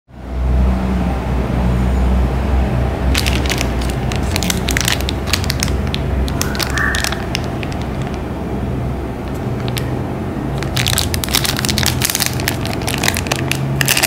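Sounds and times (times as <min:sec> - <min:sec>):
low steady rumble: 0:02.7 - 0:14.0
plastic wrappers crinkling: 0:03.1 - 0:08.3, 0:09.3 - 0:09.9, 0:10.5 - 0:14.0.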